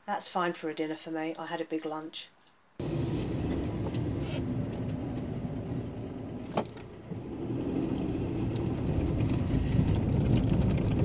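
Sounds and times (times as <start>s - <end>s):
car cabin engine and road rumble: 2.8s - 11.0s.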